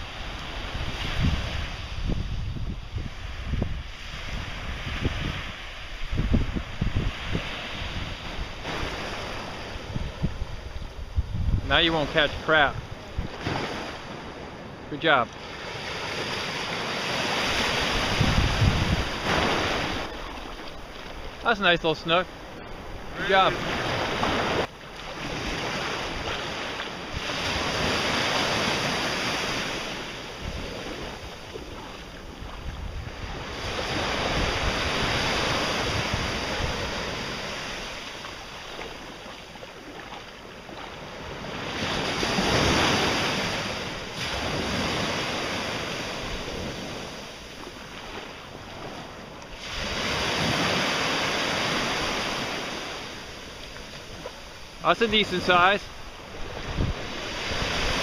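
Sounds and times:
wind buffeting microphone: 0.0 - 58.0
small surf breaking: 11.7 - 58.0.

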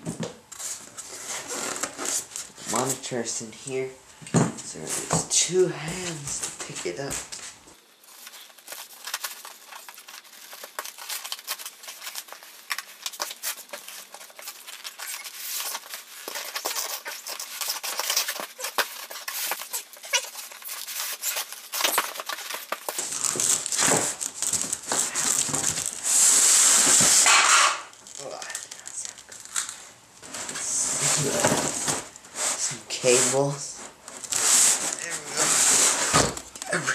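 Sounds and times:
foam packing squeaking on cardboard: 0.5 - 3.0, 6.1 - 27.6, 30.2 - 36.9
hissing scrape: 25.0 - 29.1.

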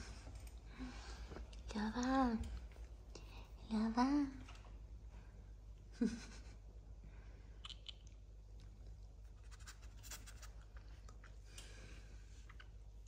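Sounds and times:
low steady hum: 0.0 - 13.0
kittens scratching on fabric: 9.4 - 10.7.

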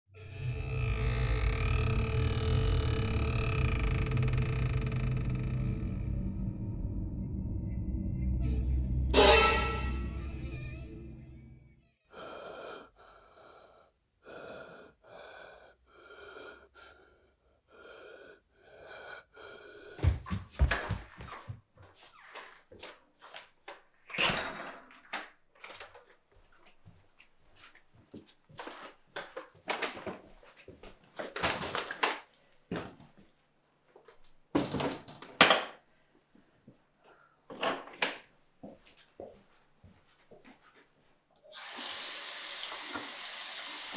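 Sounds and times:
heavy wheezy breathing: 12.0 - 20.6
footsteps: 20.0 - 23.6, 25.7 - 31.8.

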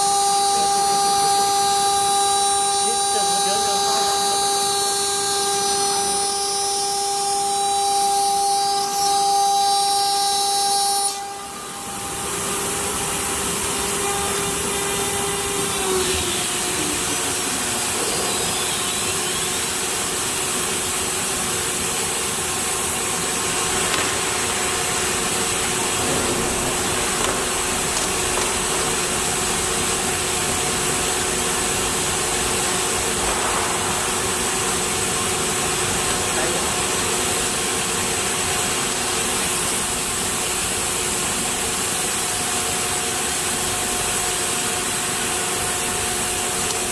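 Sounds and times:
router spindle whine: 0.0 - 33.2.

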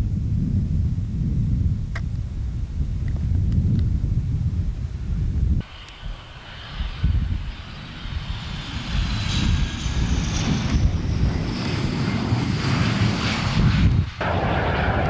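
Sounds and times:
jet engine rumble: 0.0 - 15.0
faint high whine: 5.6 - 11.8.

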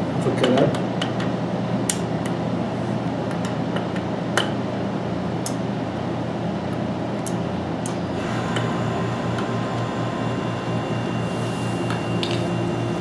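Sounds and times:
low hum: 8.1 - 13.0.

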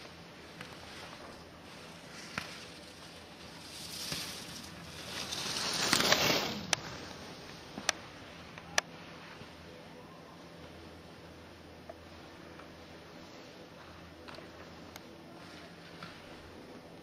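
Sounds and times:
skis scraping on hard snow: 0.4 - 7.5.

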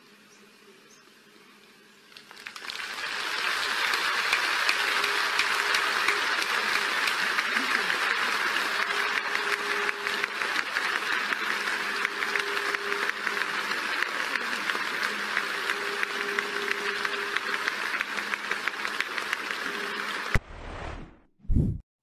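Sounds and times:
stadium crowd applauding: 2.2 - 20.4.

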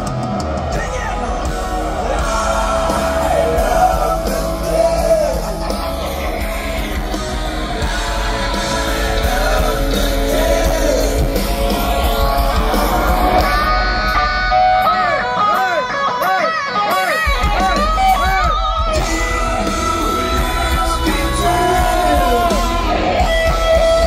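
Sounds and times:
low bass: 0.0 - 14.6, 18.5 - 24.0
electric guitars: 0.0 - 24.0
person singing: 1.7 - 13.6, 19.0 - 24.0.

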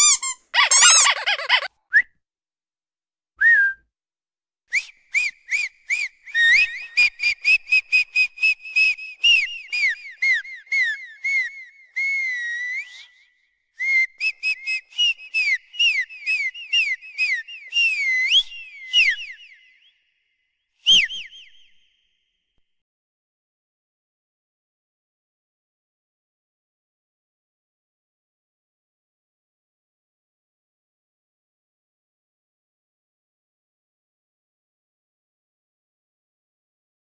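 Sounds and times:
whistling high chirps: 3.4 - 3.8, 4.7 - 22.3.

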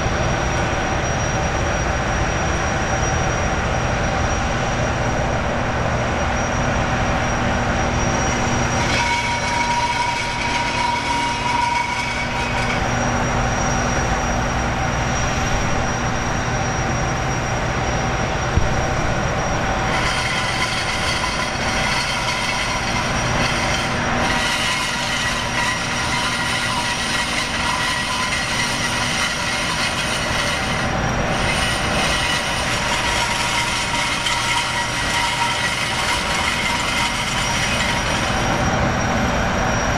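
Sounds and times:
gas turbine whine: 0.0 - 39.9.

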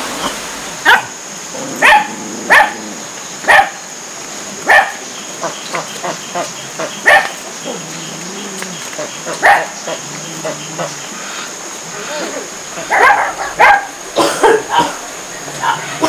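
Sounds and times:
dog barking: 0.8 - 1.2, 1.8 - 2.8, 3.5 - 3.8, 4.7 - 5.0, 7.0 - 7.4, 9.4 - 9.8, 12.8 - 15.0, 15.6 - 16.0.

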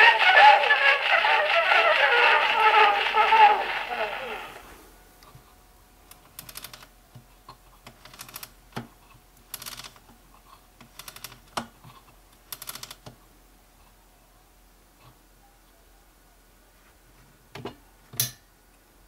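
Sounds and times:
ratchet clicks of winding crank: 9.5 - 9.9, 12.5 - 13.0.

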